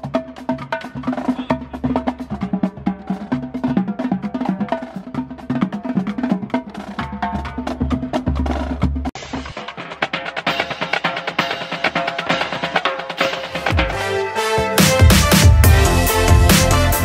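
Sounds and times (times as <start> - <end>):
tenor and snare drums: 0.0 - 17.0
bass drum hits: 14.6 - 17.0.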